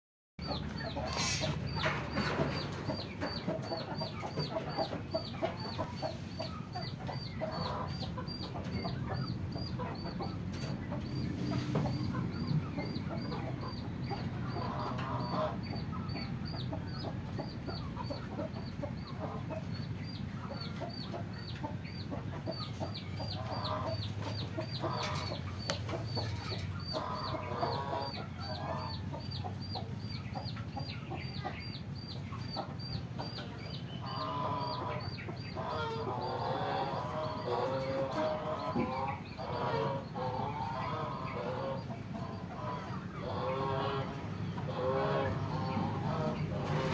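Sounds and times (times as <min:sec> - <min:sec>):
chickens clucking: 0:00.4 - 0:46.9.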